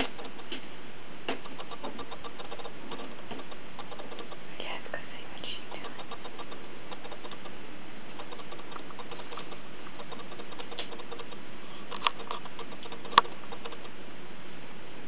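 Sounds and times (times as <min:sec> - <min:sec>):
steady background hiss: 0:00.0 - 0:15.0
kitten paws scratching on cardboard: 0:05.8 - 0:07.5.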